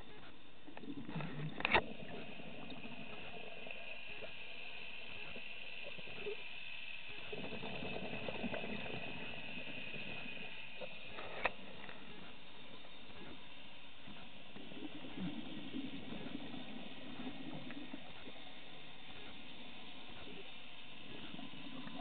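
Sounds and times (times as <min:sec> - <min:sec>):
underwater hiss: 0:01.8 - 0:22.0
diver's exhaled bubbles gurgling: 0:07.1 - 0:11.8, 0:14.5 - 0:18.5.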